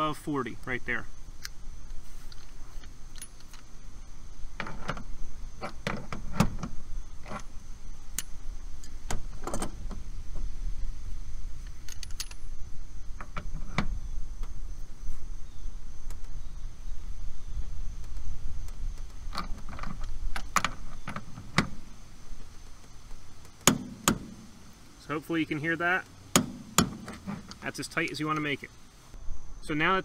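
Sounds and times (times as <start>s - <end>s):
steady low rumble: 0.0s - 30.0s
metal tools clinking: 11.8s - 12.6s.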